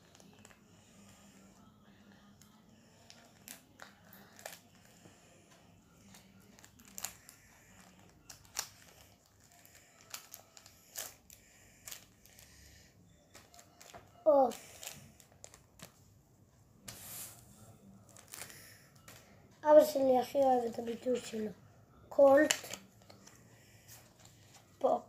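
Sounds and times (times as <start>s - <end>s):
scissors cutting a packet: 3.1s - 4.8s, 6.1s - 12.5s
packet crinkling: 6.6s - 12.5s, 18.1s - 19.2s.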